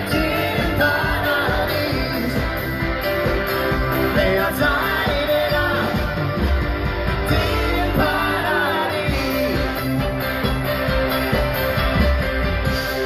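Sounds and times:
person singing: 0.0s - 2.8s, 3.7s - 6.4s, 7.1s - 10.6s
live pop-rock band: 0.0s - 13.0s.

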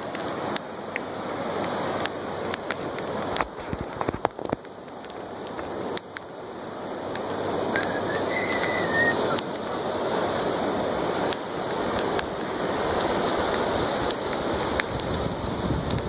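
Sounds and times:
ocean surf washing onto beach: 0.0s - 16.0s
brief high whistle: 7.8s - 9.4s.

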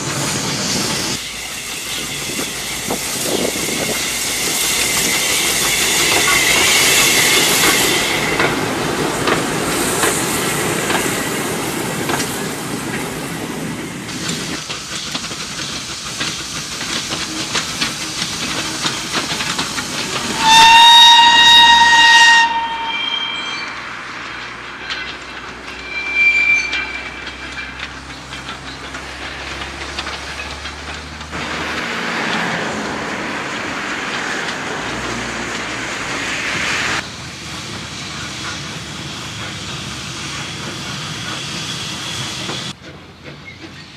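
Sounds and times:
steam hissing: 0.0s - 43.9s
wheels clicking over rail joints: 1.8s - 13.3s, 14.1s - 22.0s, 24.0s - 25.9s, 26.7s - 36.2s
steam whistle blast: 20.3s - 23.8s, 25.8s - 27.3s.

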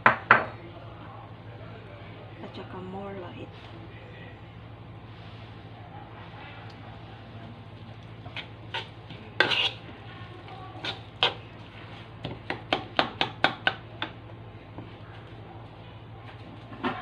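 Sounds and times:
fork scraping a wooden bowl: 8.3s - 9.9s, 10.8s - 12.0s.

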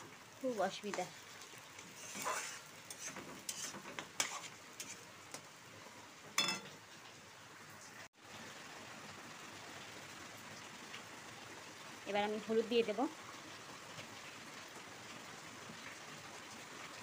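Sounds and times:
paste sizzling in hot oil: 0.0s - 5.9s
spatula scraping pan: 1.8s - 5.4s
spatula clinking against pan: 6.4s - 6.7s.

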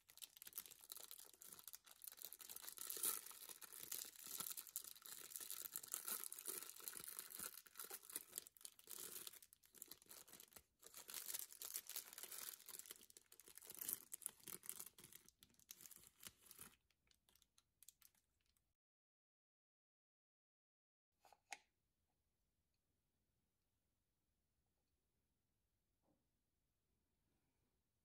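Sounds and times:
plastic wrapper crinkling and tearing: 0.0s - 18.5s.

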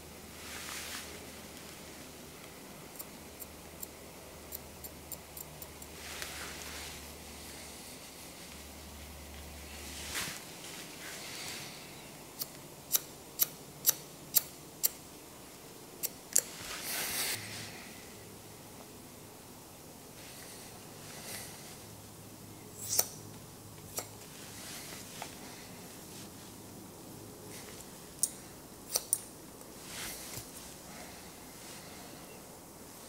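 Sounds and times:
comb rustling through hair: 9.8s - 11.7s
scissors snipping hair: 28.9s - 29.2s.

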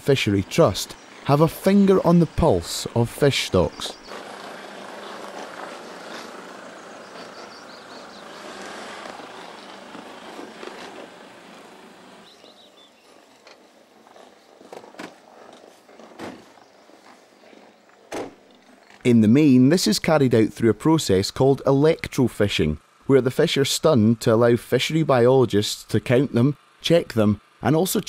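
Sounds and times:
diesel engine: 0.0s - 13.5s
tyres rolling on gravel: 0.0s - 19.2s.

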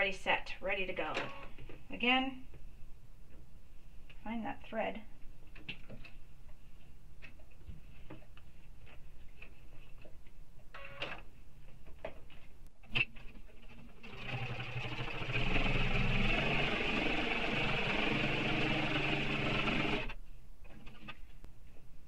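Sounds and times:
sewing machine stitching: 13.6s - 20.2s.

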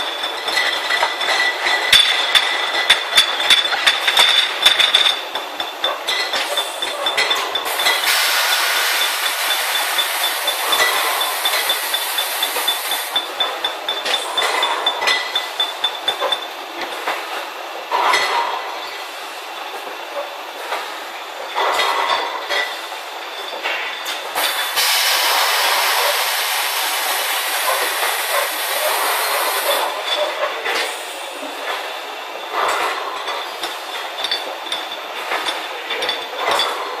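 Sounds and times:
glass bottles clinking: 0.0s - 17.1s, 21.5s - 37.0s
bottling machine clatter: 0.0s - 37.0s
loud even hiss: 7.8s - 10.7s, 24.4s - 29.9s.

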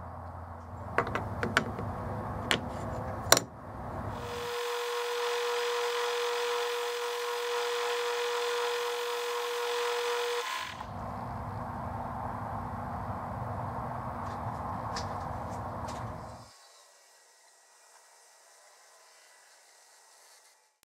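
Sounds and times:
sharp metallic clicks and knocks: 0.6s - 3.6s
metal lathe whining: 4.0s - 10.9s.

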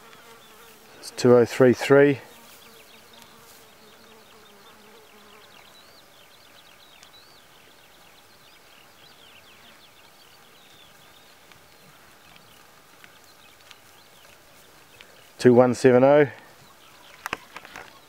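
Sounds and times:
insect buzzing: 0.0s - 6.1s.

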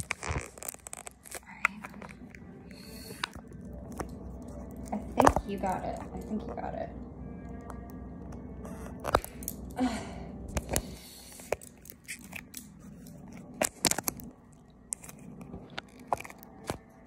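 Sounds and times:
phone case scraping: 0.0s - 2.3s, 14.9s - 16.8s.

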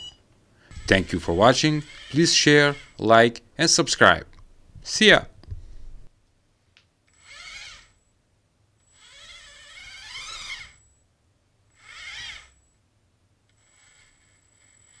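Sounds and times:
small gear motors whining: 0.7s - 3.0s, 7.1s - 8.1s, 8.8s - 11.0s, 11.7s - 12.7s, 13.5s - 15.0s.

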